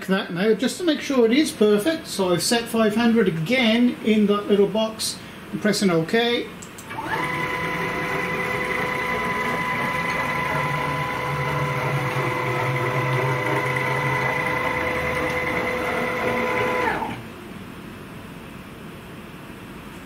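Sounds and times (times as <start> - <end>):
stepper motors whining: 6.9 - 17.2.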